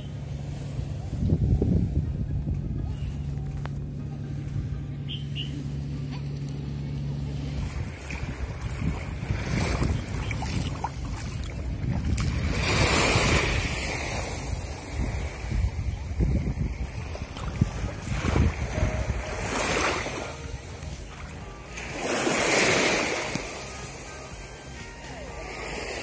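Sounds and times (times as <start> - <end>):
wind on microphone: 0.6 - 3.9, 7.6 - 21.1
small waves washing on sand: 7.6 - 16.2, 16.8 - 26.0.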